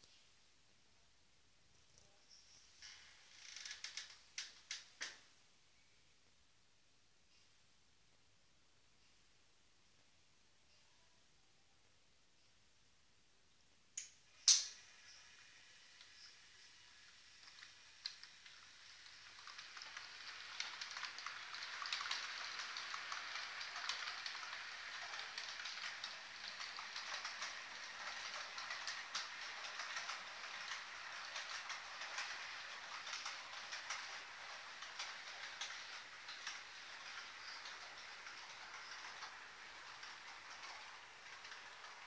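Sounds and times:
model train wheels rumbling on rails: 0:02.8 - 0:05.3, 0:14.6 - 0:42.0
wheels clicking over rail joints: 0:16.0 - 0:42.0.

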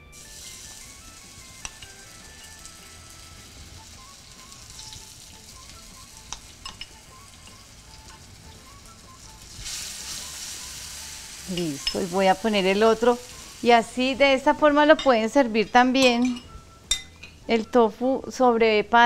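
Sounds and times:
tofu sizzling in hot oil: 0:00.1 - 0:14.2
spoon clicking against pan: 0:01.6 - 0:01.9, 0:06.3 - 0:07.0.

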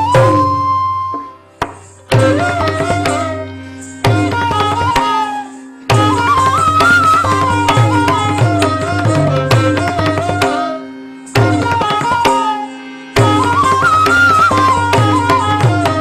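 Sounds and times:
ornamented melody line: 0:00.0 - 0:16.0.

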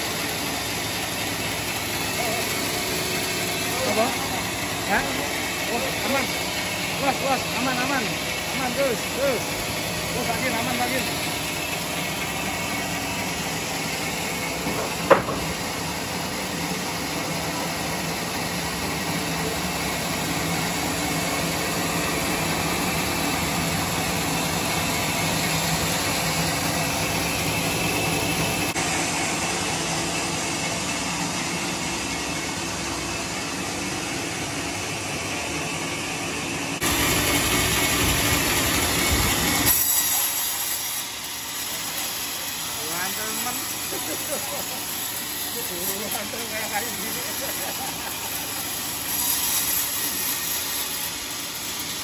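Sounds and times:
circular sawmill running: 0:00.0 - 0:52.0
sharp knock: 0:14.7 - 0:15.6.

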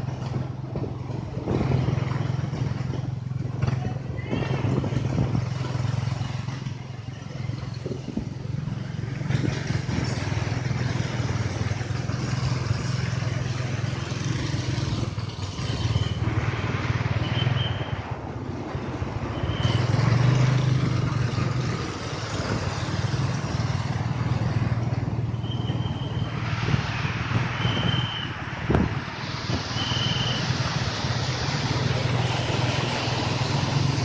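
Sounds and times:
tyres hissing through water spray: 0:25.8 - 0:34.0.

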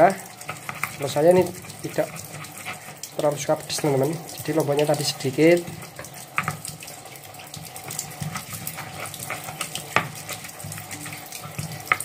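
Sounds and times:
stone pestle grinding wet food: 0:00.0 - 0:05.0, 0:05.6 - 0:12.0
stone knocking on stone: 0:09.9 - 0:10.2.

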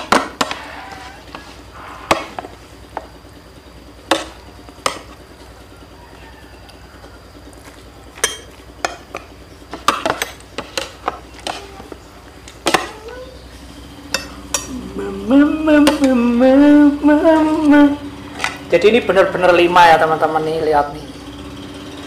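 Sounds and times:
man humming: 0:14.7 - 0:18.0.

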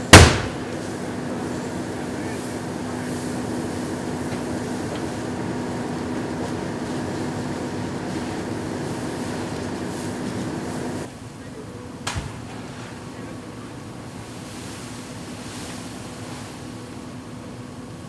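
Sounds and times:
flames rushing: 0:00.0 - 0:11.1
low engine hum: 0:00.0 - 0:18.0.

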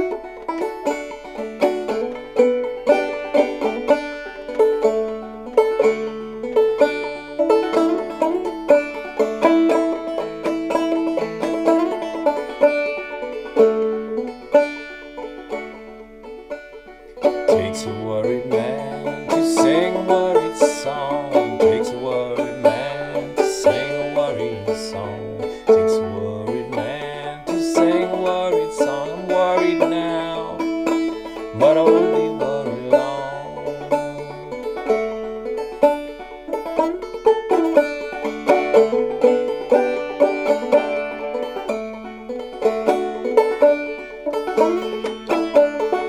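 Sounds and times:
banjo melody: 0:00.0 - 0:46.0
man singing: 0:17.4 - 0:30.7, 0:31.5 - 0:34.7.

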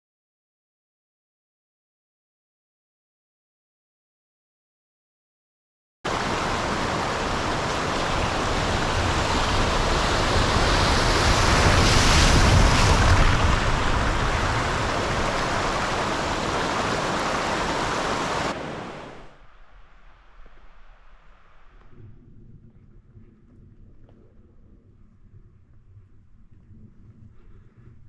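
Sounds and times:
water rushing over stones: 0:06.1 - 0:19.4.

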